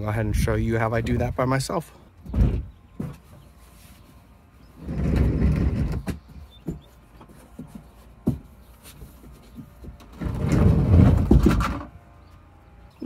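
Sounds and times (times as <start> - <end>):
hollow knocks: 2.2 - 3.5, 4.8 - 11.9
kayak hull rumbling: 4.8 - 6.2, 10.1 - 11.9.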